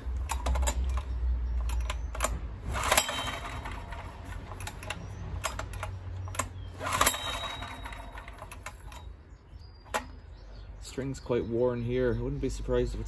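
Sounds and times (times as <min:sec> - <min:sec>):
starter mechanism clicks and rattles: 0:00.0 - 0:09.2, 0:09.8 - 0:10.2
generator recoil starter pulled: 0:00.0 - 0:10.2.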